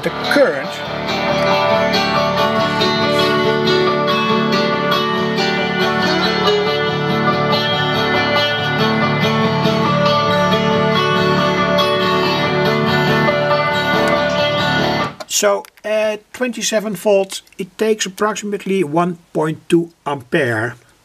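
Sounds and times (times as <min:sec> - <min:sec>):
guitar music through loudspeaker: 0:00.0 - 0:15.2.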